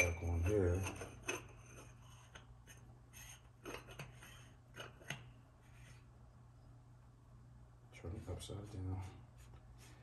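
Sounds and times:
cap clicking and scraping: 0:00.0 - 0:05.3.

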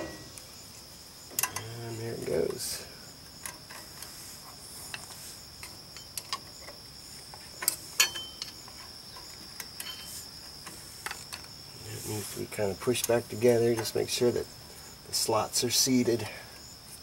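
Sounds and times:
metal brake parts clicking: 0:01.3 - 0:02.6, 0:07.6 - 0:11.5.

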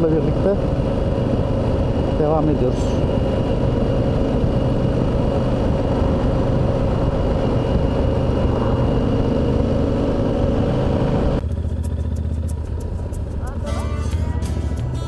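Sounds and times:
motorcycle engine running: 0:00.0 - 0:15.0
wind noise on microphone: 0:00.2 - 0:11.7.

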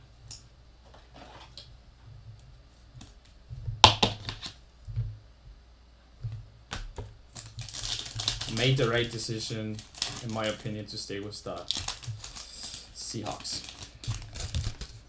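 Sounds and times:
cards rustling: 0:07.3 - 0:15.0.

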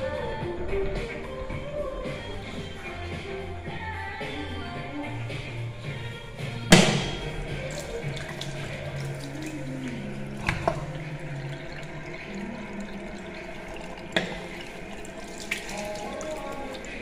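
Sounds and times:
water running into basin: 0:05.8 - 0:17.0.

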